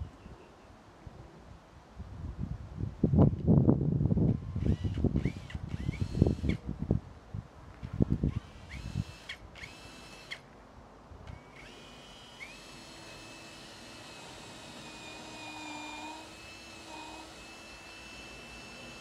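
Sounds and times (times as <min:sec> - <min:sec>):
cordless drill drilling into log: 0:04.3 - 0:06.6, 0:08.3 - 0:10.5, 0:11.2 - 0:19.0.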